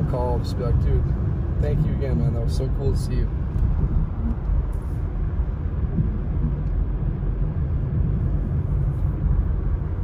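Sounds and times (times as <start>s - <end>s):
car engine and tyres rumbling: 0.0s - 10.0s.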